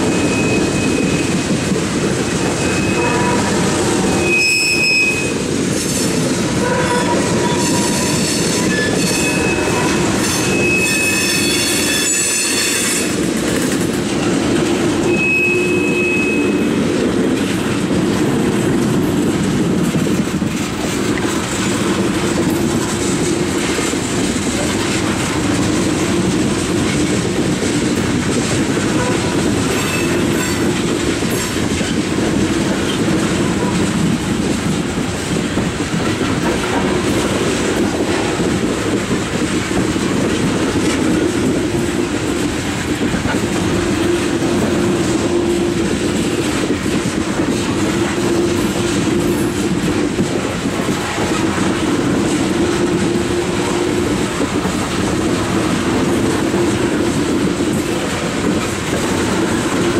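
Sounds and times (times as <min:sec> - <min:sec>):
train wheels rumbling on rails: 0:00.0 - 0:59.9
high-pitched wheel squeals: 0:02.4 - 0:05.4, 0:07.1 - 0:13.1, 0:15.1 - 0:16.7.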